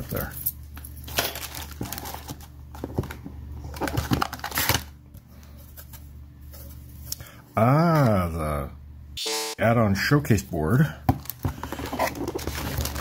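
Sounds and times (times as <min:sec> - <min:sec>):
plastic bags crinkling: 0:01.0 - 0:02.9, 0:12.0 - 0:13.0.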